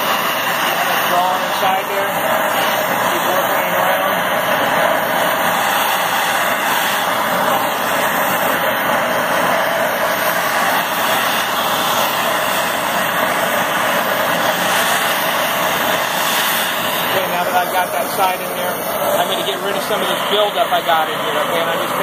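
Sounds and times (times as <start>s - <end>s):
gas torch hissing: 0.0s - 22.0s.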